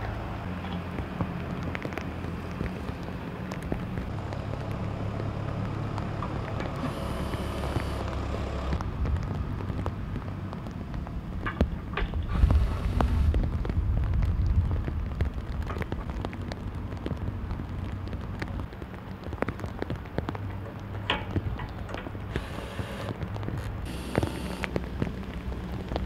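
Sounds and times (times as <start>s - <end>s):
low rumble: 0.0s - 18.7s
light rain: 0.0s - 26.0s.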